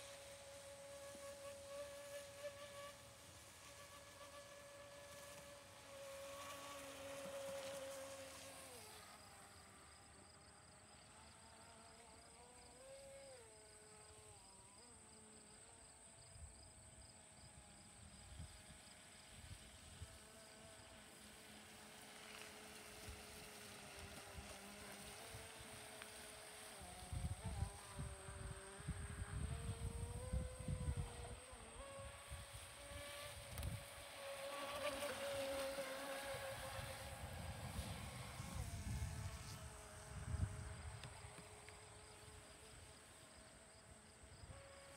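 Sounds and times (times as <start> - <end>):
faint model speedboat motor whine: 0.0 - 44.9
speedboat motor whining: 20.2 - 42.5.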